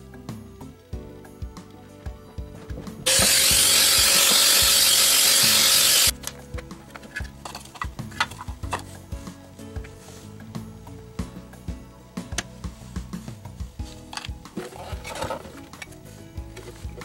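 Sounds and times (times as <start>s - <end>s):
background music: 0.0s - 17.0s
loud steady hiss: 3.1s - 6.2s.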